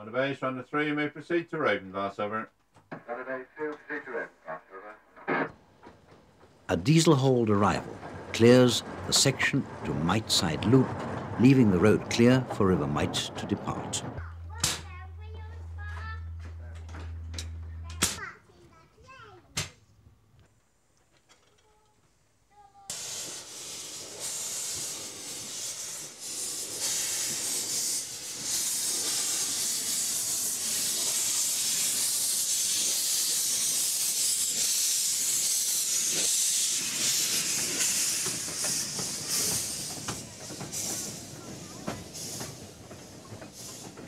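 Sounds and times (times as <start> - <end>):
steam locomotive hissing: 3.6 - 18.2, 22.5 - 44.0.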